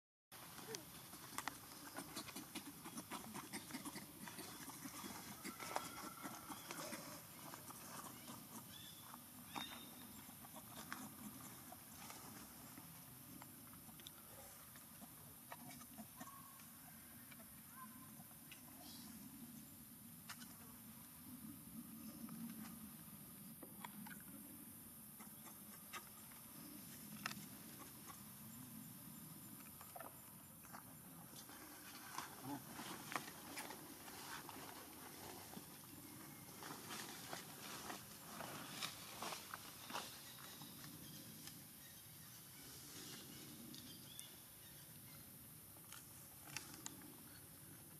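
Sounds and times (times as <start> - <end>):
monkey call: 0.6 - 11.9, 15.5 - 19.0, 25.2 - 26.4
rustling in dry leaves: 31.5 - 40.6.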